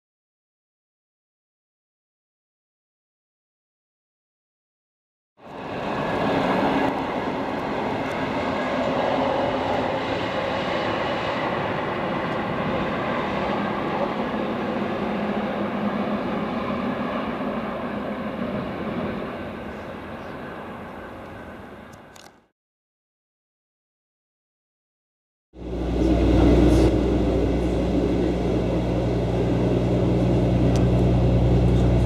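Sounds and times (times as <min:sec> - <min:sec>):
electric train rumbling past: 0:05.5 - 0:17.0, 0:25.6 - 0:32.0.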